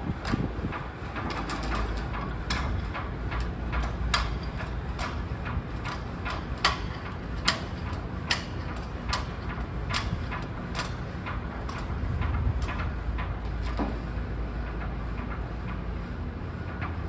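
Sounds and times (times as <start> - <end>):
wind rumble on microphone: 0.0 - 17.0
halyard hardware clinking on metal pole: 0.2 - 13.9.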